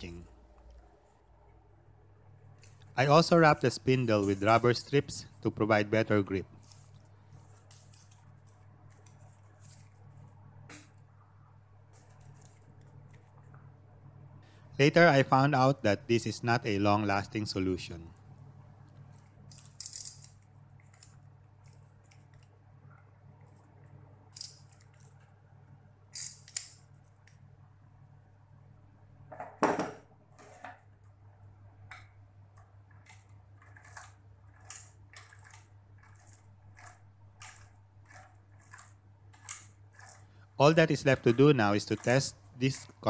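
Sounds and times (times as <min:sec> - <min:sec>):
metal clinks and clicks: 0:19.1 - 0:22.5.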